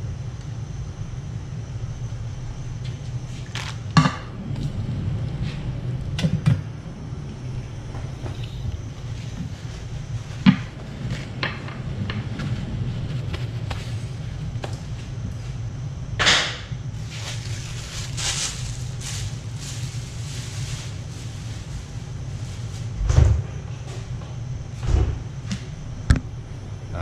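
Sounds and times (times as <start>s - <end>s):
low hum: 0.0s - 27.0s
rustle or scrape: 17.0s - 23.0s.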